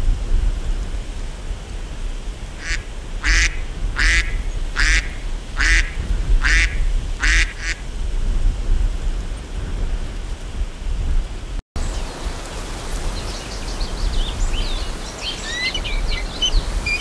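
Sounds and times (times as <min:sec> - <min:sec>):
duck quacking: 0:02.6 - 0:07.8.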